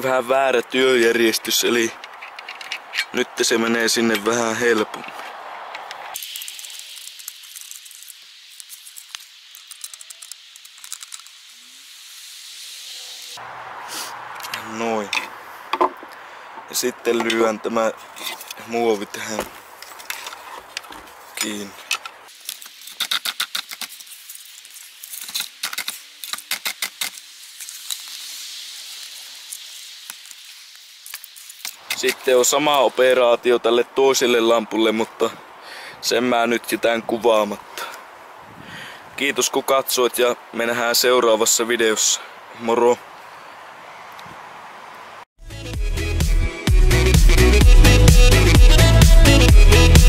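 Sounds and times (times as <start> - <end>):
steady hiss: 0.0 - 45.3
screwdriver clicks and scrapes: 2.0 - 3.2.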